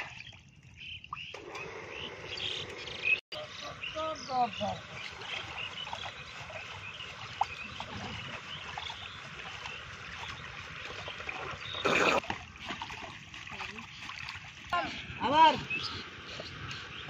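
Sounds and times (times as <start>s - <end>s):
birds chirping: 0.0s - 12.7s, 13.5s - 17.0s
muddy water sloshing: 3.0s - 17.0s.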